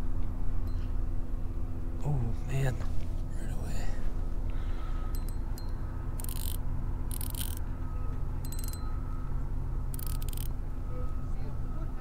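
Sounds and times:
fishing reel gears clicking: 6.2 - 7.6, 8.5 - 8.8, 9.9 - 10.5.

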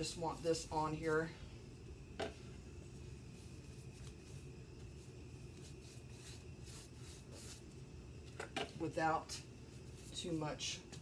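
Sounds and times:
low room hum: 0.0 - 11.0
paintbrush strokes on wood: 2.8 - 7.8, 9.6 - 10.8.

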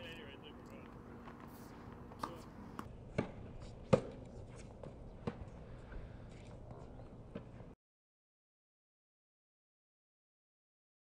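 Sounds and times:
faint background noise: 0.0 - 7.8
tennis balls struck with rackets: 1.2 - 5.6.

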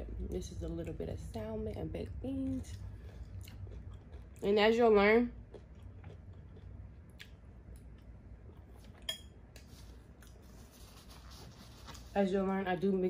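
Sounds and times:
metal fork clinking glass bowl: 9.0 - 9.3.

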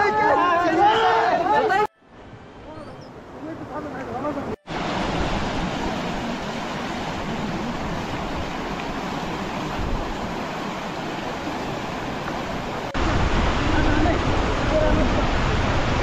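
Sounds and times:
river rushing over rocks: 3.6 - 16.0.

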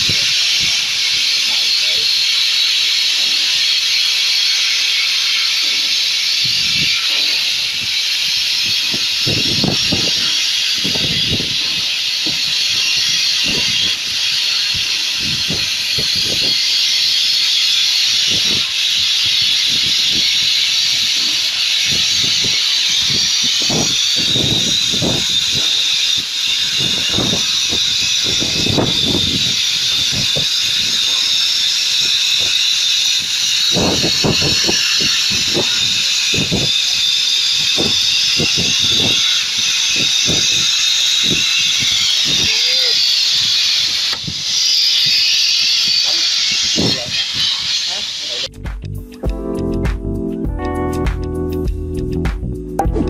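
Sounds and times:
plasma arc hissing: 0.0 - 48.5
low rumbles: 48.5 - 53.0.

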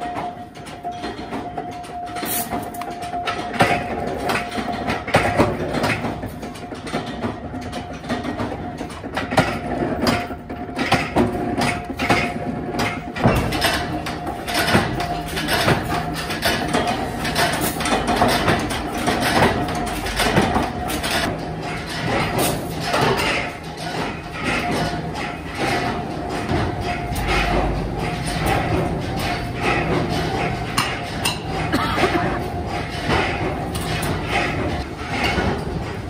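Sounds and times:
machinery clicks and knocks: 0.0 - 36.0.

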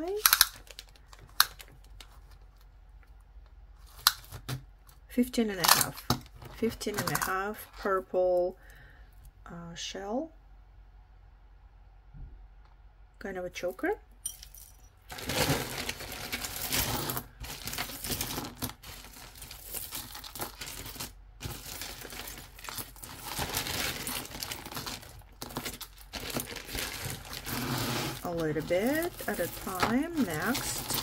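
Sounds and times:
plastic bag crinkling: 0.0 - 2.7, 15.1 - 31.0
beads and chain clinking: 14.3 - 31.0.

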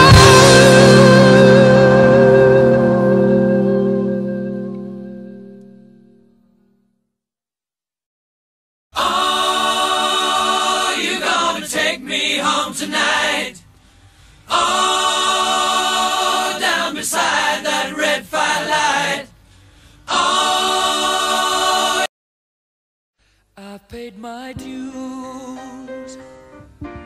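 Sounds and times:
choir singing sustained chords: 0.0 - 6.2, 9.0 - 13.6, 14.4 - 22.1.

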